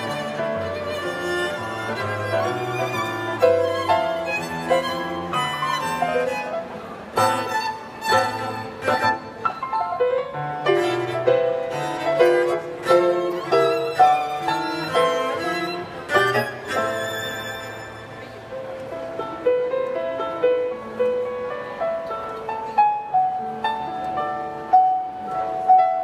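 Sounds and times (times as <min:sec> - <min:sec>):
bowed violin: 0:00.0 - 0:19.1
cello: 0:00.0 - 0:26.0
piano chords: 0:00.0 - 0:26.0.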